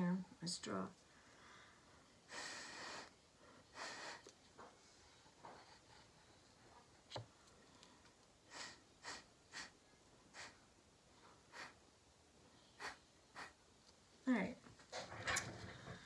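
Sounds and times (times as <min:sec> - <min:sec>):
puffs of breath through a straw: 0:01.3 - 0:04.3, 0:08.5 - 0:10.6, 0:11.5 - 0:11.8, 0:12.8 - 0:13.6.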